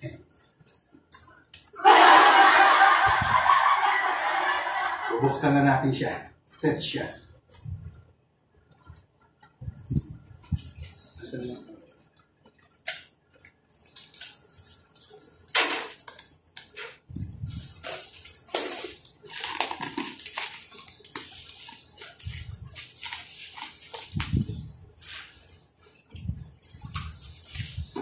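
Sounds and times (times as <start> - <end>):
plastic wrap crinkling: 12.8 - 26.0, 26.6 - 28.0.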